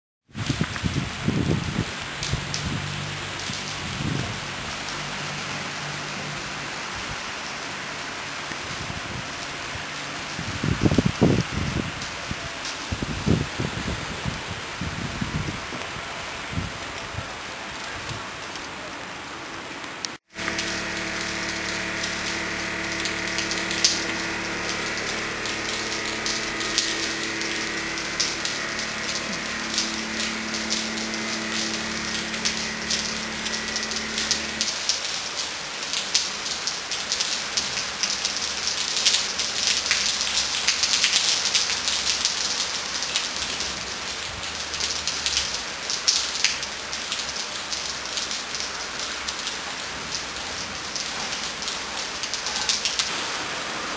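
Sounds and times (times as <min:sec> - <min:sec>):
rain pattering: 0:00.3 - 0:53.9
truck engine humming: 0:20.3 - 0:35.1.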